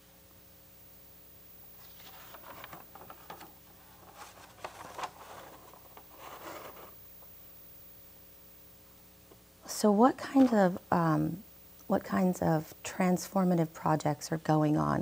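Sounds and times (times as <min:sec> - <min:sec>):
faint steady hum: 0:00.0 - 0:15.0
paper rustling: 0:01.8 - 0:07.0, 0:10.2 - 0:10.8.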